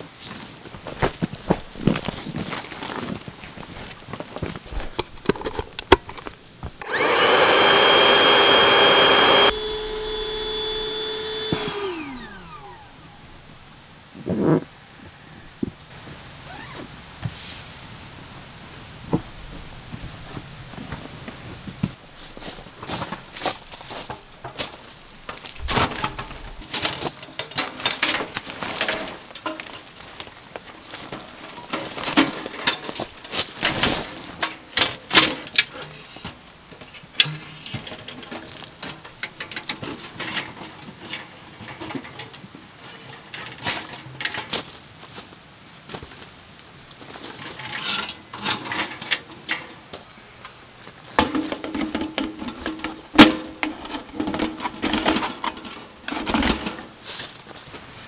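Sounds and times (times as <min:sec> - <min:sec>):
camping gear clicks and rattles: 0:00.0 - 0:06.8, 0:22.2 - 0:45.3, 0:46.0 - 0:58.0.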